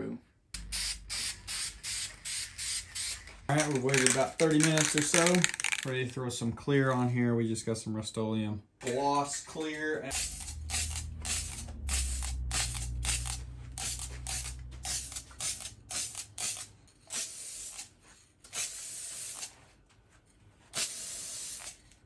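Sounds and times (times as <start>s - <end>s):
aerosol can spraying: 0.6s - 3.3s, 10.1s - 17.9s, 18.5s - 19.5s, 20.8s - 21.8s
low hum: 10.1s - 15.8s.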